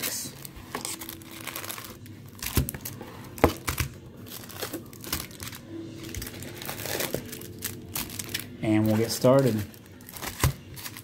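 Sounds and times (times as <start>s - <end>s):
foil packs crinkling: 0.0s - 11.0s.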